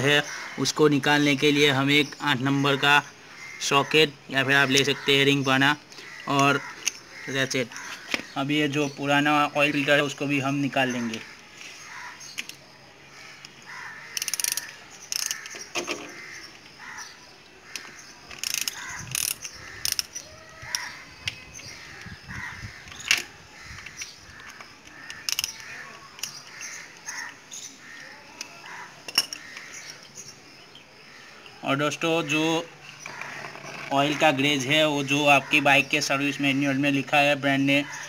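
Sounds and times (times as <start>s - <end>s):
socket ratchet clicking: 14.2s - 15.7s, 17.7s - 21.4s, 23.8s - 27.1s.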